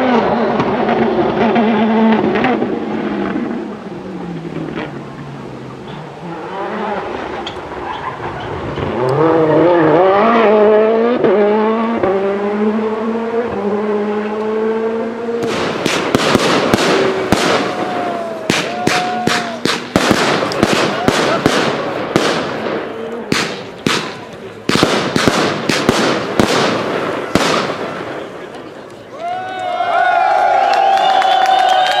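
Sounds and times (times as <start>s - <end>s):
fireworks cracking and banging: 0.0s - 3.8s, 15.4s - 29.1s
rally car engine revving: 0.0s - 19.2s.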